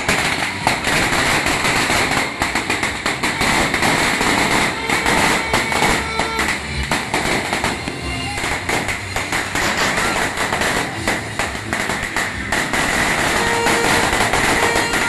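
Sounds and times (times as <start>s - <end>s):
firecrackers cracking: 0.0s - 15.0s.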